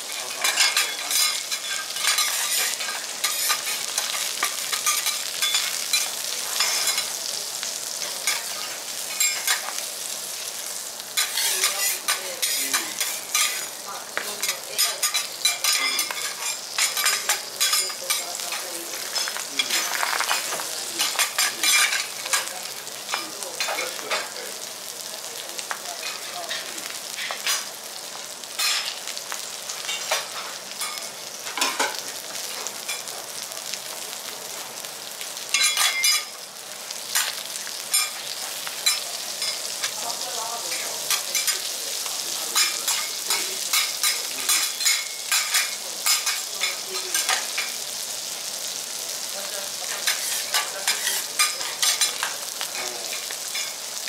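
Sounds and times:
fish sizzling in oil: 0.0s - 54.0s.

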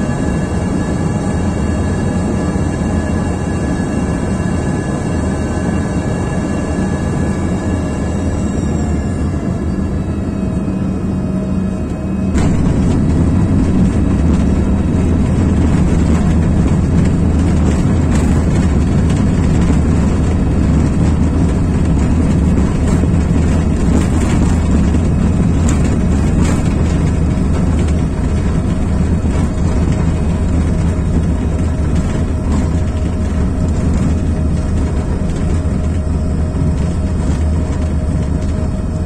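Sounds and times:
jet engines roaring: 0.0s - 39.0s
rushing air: 12.3s - 28.5s.

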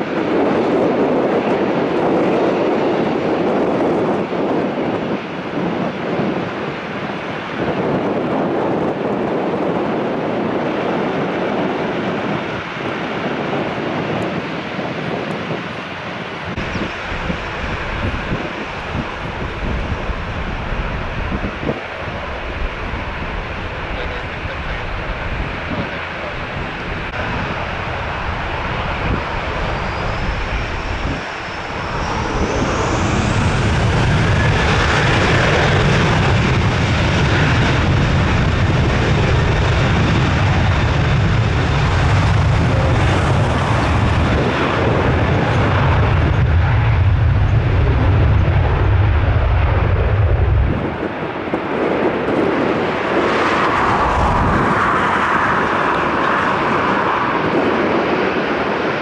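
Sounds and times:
jet engine roar: 0.0s - 59.0s
jet engines spooling up: 16.4s - 59.0s.

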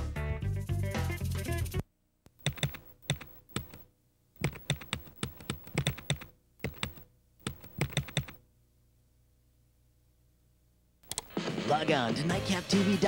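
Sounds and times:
faint steady hum: 1.8s - 11.4s
rapid typing keystrokes: 2.3s - 8.4s, 11.0s - 11.4s.

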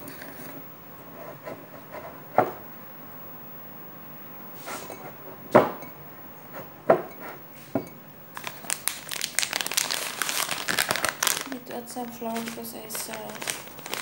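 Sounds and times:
plastic bag crinkling: 8.3s - 14.0s.

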